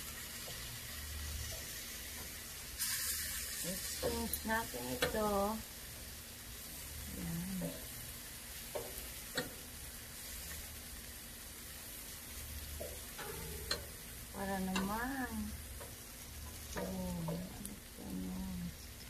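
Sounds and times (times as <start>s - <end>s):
meat sizzling on grill: 0.0s - 19.0s
metal tongs clicking on grate: 3.9s - 5.4s, 8.7s - 9.6s, 12.8s - 17.8s.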